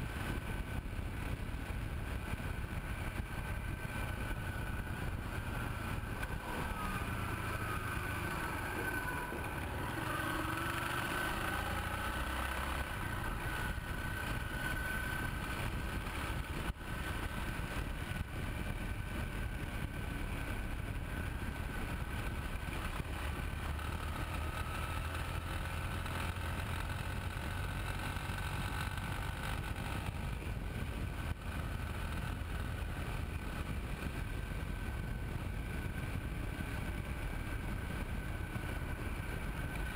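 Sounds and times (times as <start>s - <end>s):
wind rush: 0.0s - 23.9s
motorcycle engine: 0.0s - 39.9s
tyre noise on asphalt: 0.0s - 39.9s.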